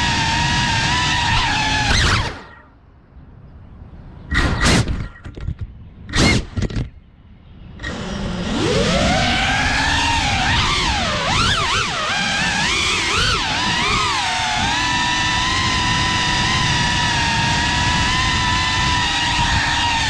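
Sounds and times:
drone motors whining: 0.0 - 2.8, 7.7 - 20.0.

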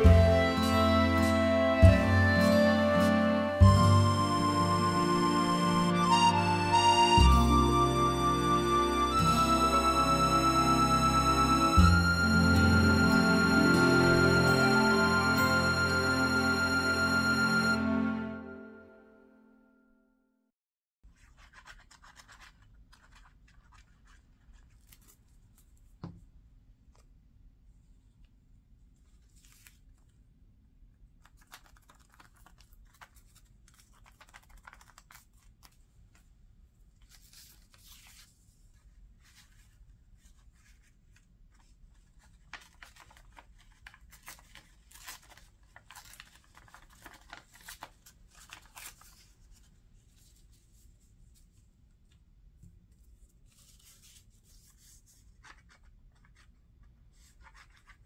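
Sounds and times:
paper rustling and scratching: 21.1 - 26.0, 29.0 - 30.1, 31.2 - 36.4, 37.0 - 51.6, 53.0 - 58.0.

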